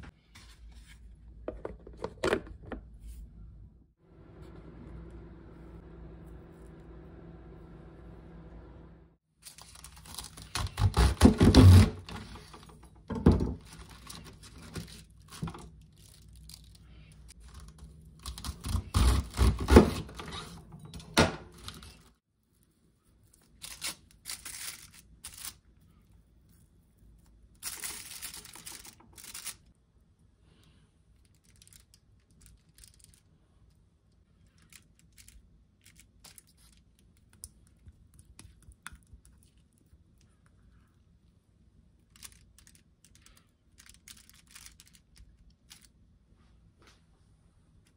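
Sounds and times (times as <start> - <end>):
aluminium foil rustling: 9.4 - 10.8, 21.6 - 25.7, 27.2 - 29.7, 31.2 - 33.3, 42.1 - 45.9
knife chopping cabbage: 10.1 - 12.0, 18.2 - 20.2.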